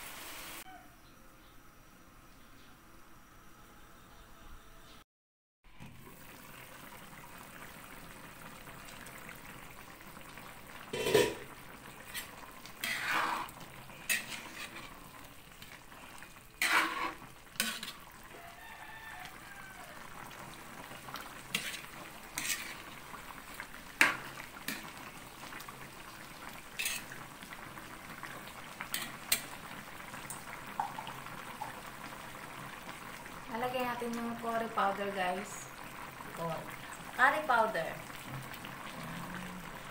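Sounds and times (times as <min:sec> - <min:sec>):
broth bubbling in a wok: 0:05.7 - 0:39.9
metal utensil clanking on pan: 0:11.0 - 0:13.0, 0:26.8 - 0:27.1, 0:28.9 - 0:29.5.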